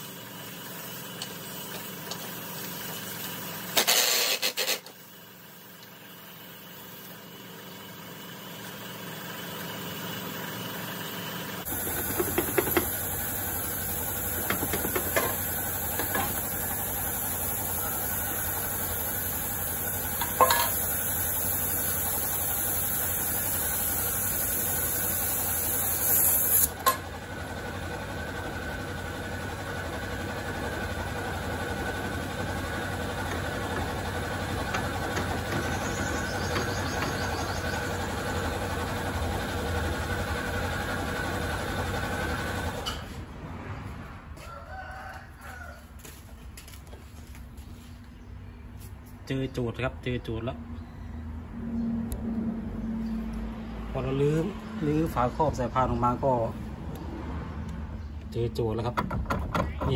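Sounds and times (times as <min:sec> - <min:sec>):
mechanical hum with hiss: 0:00.0 - 0:43.3.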